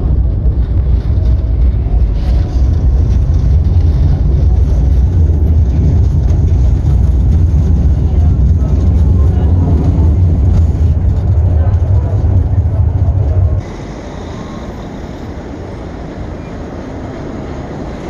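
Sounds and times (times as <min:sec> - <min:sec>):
tram wheels rumbling on rails: 0:00.0 - 0:18.0.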